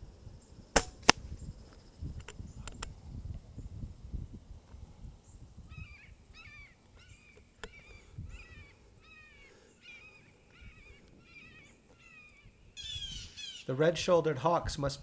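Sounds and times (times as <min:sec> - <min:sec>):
low wind rumble: 0:00.0 - 0:13.7
sharp click: 0:00.8 - 0:01.2
hawk calling: 0:05.7 - 0:13.8.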